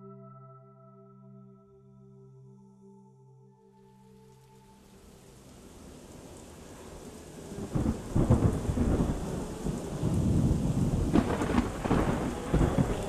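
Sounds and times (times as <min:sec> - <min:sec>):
rain hiss: 0:03.8 - 0:13.0
heavy rumbling thunder: 0:05.8 - 0:13.0
sharp thunder claps: 0:07.4 - 0:13.0.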